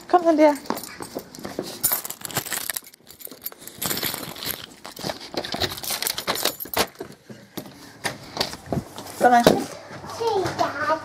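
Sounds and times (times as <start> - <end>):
keys jangling on key ring: 0.4 - 7.1.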